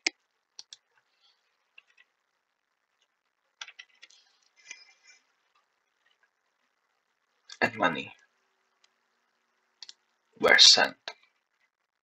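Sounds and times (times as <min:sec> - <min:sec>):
computer keyboard and mouse clicks: 0:01.8 - 0:02.1, 0:03.0 - 0:04.9.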